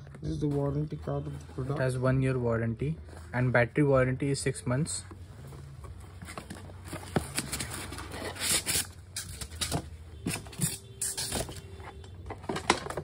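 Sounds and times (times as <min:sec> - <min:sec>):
cardboard scraping and rustling: 0:05.8 - 0:13.0.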